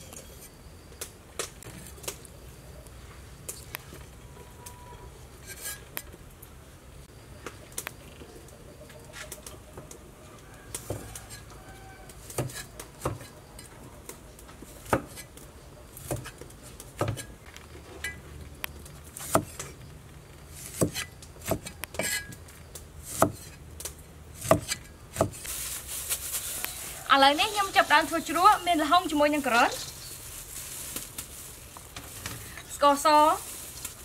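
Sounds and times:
cleaver chopping on wooden board: 0:19.2 - 0:19.6, 0:20.7 - 0:22.2, 0:23.1 - 0:23.5, 0:24.4 - 0:25.4.

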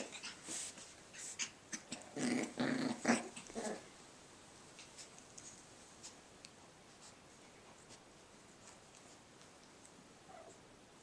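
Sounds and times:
puppy play-growling: 0:00.0 - 0:04.0.

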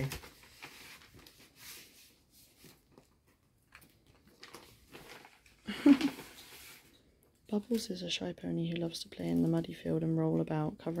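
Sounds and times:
paper envelope rustling: 0:00.0 - 0:06.9.

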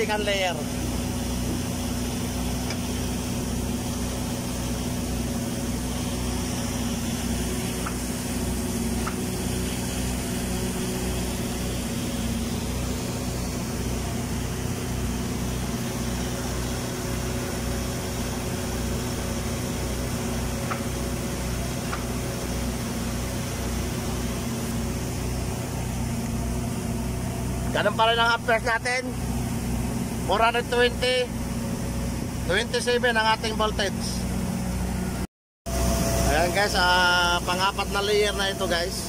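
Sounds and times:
welding machine hum: 0:00.0 - 0:32.6, 0:35.7 - 0:39.0.

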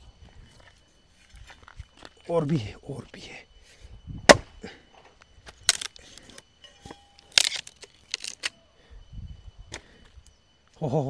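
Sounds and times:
axe splitting wooden log: 0:04.3 - 0:04.5, 0:05.7 - 0:06.1, 0:06.8 - 0:08.5.

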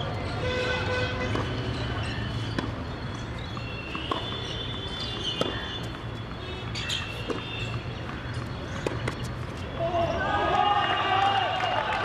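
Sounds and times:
tennis ball knocking on hard court: 0:05.2 - 0:05.7.

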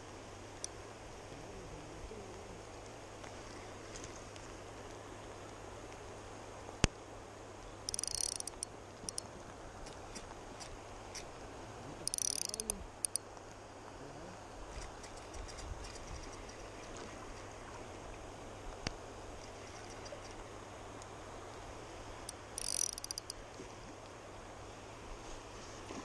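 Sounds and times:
fishing reel ticking: 0:07.9 - 0:09.3, 0:12.0 - 0:13.2, 0:22.3 - 0:23.4
sharp clicks: 0:07.9 - 0:11.3, 0:12.1 - 0:13.2, 0:22.6 - 0:23.4.

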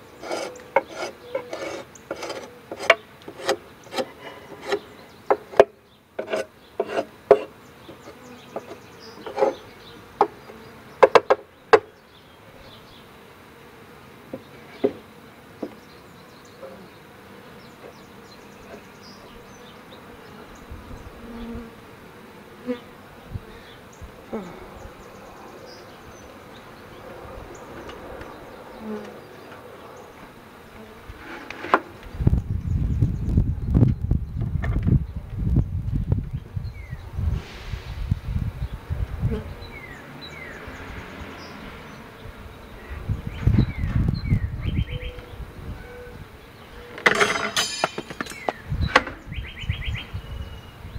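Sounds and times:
honeybees buzzing: 0:00.0 - 0:34.5, 0:38.1 - 0:50.9
wooden knocks and scraping: 0:00.2 - 0:09.6, 0:31.2 - 0:31.9
bee humming past: 0:07.0 - 0:34.2, 0:35.0 - 0:47.0.

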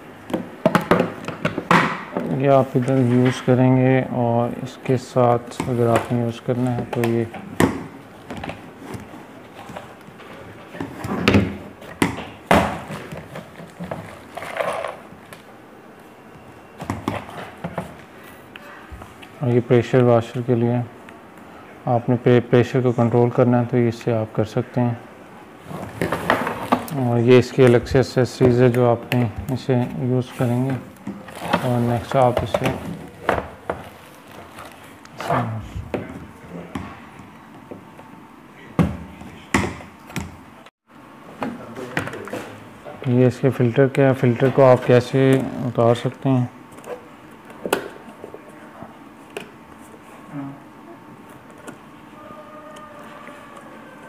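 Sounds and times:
plastic attachments knocking and clicking: 0:00.2 - 0:02.3.

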